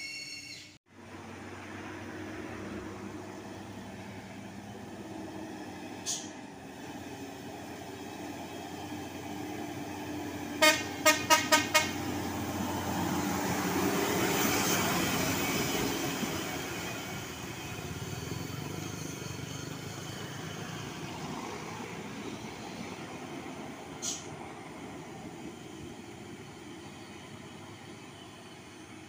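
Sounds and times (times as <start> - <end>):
dump truck passing: 0.9 - 29.0
vehicle horn toots: 10.6 - 12.1.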